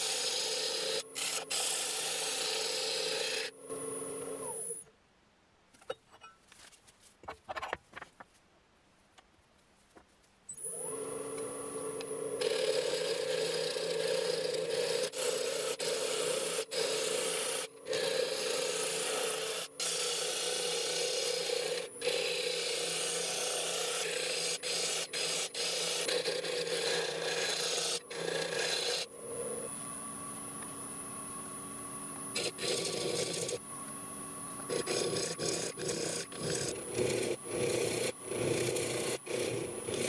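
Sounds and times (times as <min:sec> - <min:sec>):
wood lathe humming: 0:00.0 - 0:04.6, 0:10.7 - 0:30.0, 0:32.3 - 0:33.6, 0:34.7 - 0:40.0
tool scraping spinning wood: 0:00.0 - 0:04.8, 0:10.9 - 0:29.7, 0:32.3 - 0:33.6, 0:34.7 - 0:40.0.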